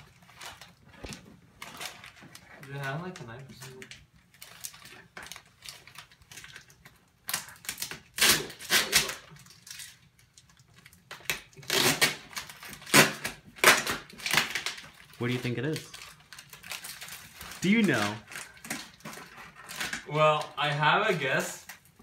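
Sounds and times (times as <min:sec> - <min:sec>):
tape and paper tearing: 0:04.4 - 0:10.1, 0:10.8 - 0:21.4.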